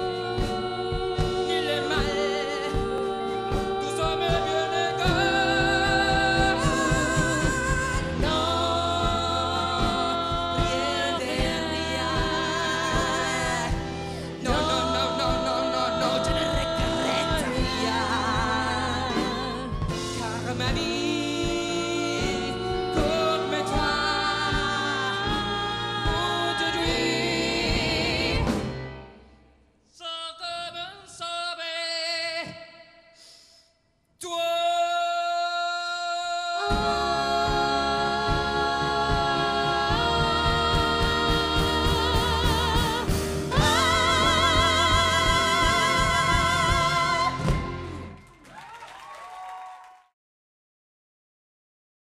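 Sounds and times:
lead singer singing: 0.0 - 28.8, 34.2 - 48.0
female backing singers holding notes: 0.0 - 29.1, 36.6 - 48.2
live band playing: 0.0 - 29.3, 36.7 - 48.5.

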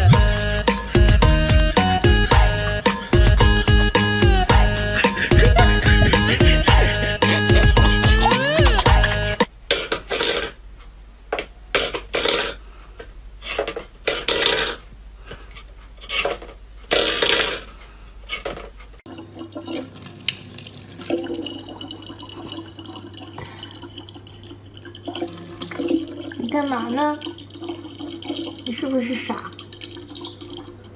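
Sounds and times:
water trickling into plastic bottle: 19.1 - 30.9.

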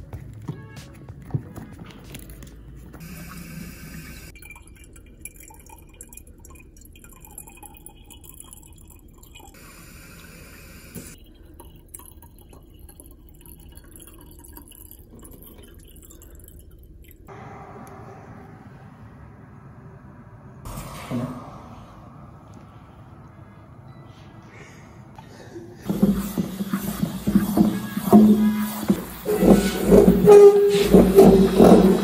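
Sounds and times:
water dripping: 3.0 - 9.6, 11.0 - 17.3.

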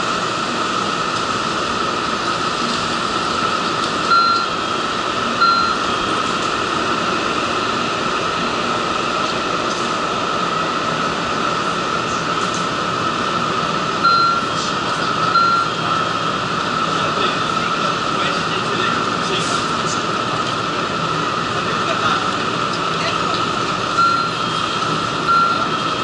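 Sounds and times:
station platform hum and hiss: 0.0 - 26.0
short electronic beeps: 4.1 - 4.6, 5.4 - 5.9, 14.0 - 14.5, 15.3 - 15.8, 24.0 - 24.5, 25.3 - 25.7.

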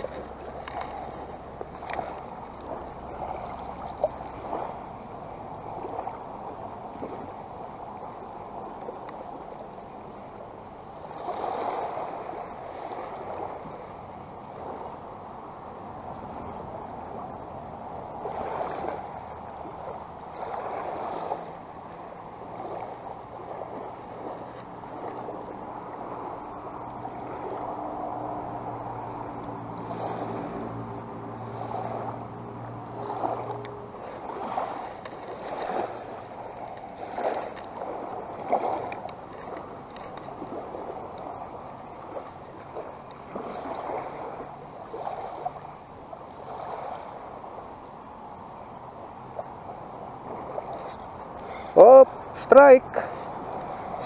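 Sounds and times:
small waves lapping: 0.0 - 54.0
wind on microphone: 0.0 - 54.0
low steady hum: 21.6 - 46.3.

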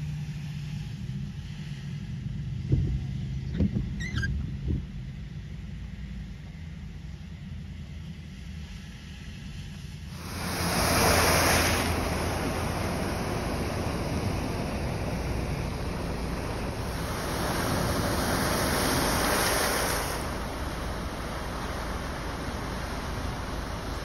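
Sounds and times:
low rumble: 1.0 - 24.0
tyres splashing through floodwater: 10.1 - 24.0.

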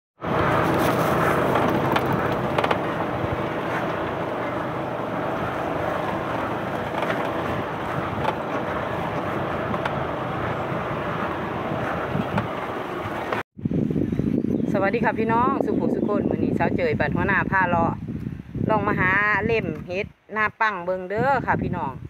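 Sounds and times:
wind rushing across microphone: 0.2 - 22.0.

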